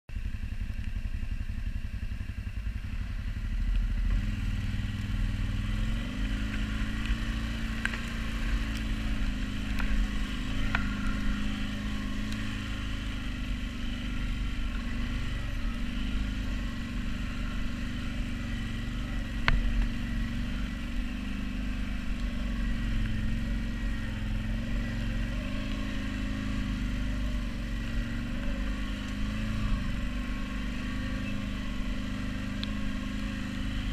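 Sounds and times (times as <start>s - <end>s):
atv engine running: 0.1s - 33.9s.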